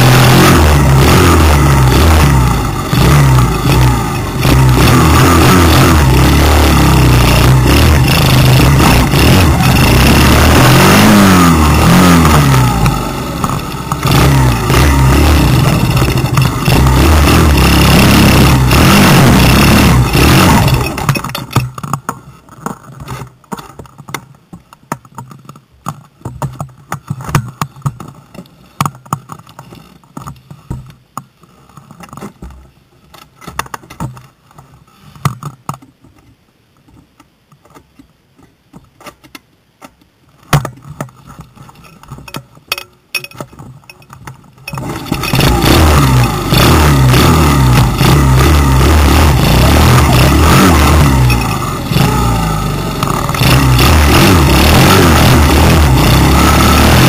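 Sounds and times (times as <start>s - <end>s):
dirt bike engine revving: 0.0s - 21.6s, 44.7s - 57.0s
clicks and rattles: 15.5s - 16.9s, 20.0s - 46.4s.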